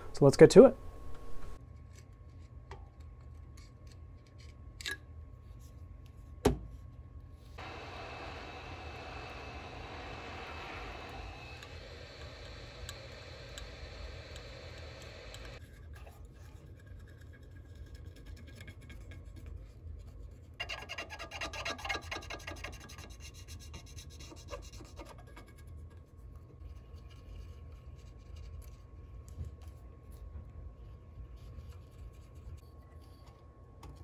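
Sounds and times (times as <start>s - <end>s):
steady blowing hiss: 7.6s - 15.6s.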